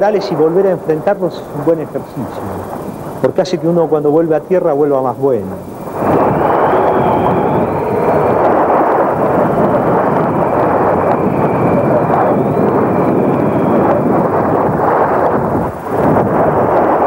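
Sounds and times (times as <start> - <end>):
storm wind roaring: 0.0 - 17.0
heavy sea: 5.0 - 17.0
faint high whistle: 6.0 - 14.6.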